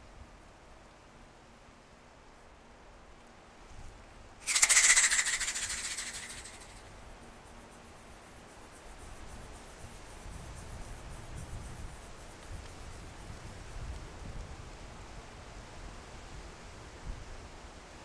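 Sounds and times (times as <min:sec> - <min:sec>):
dragonfly wings whirring: 0:04.4 - 0:06.9.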